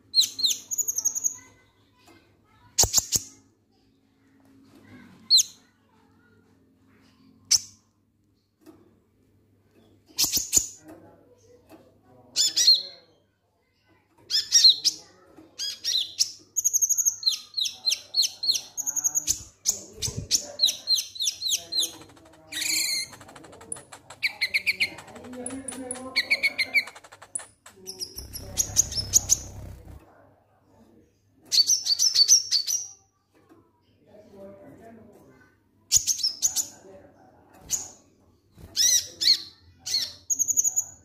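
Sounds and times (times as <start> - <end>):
bird singing high chirps: 20.6 - 29.9.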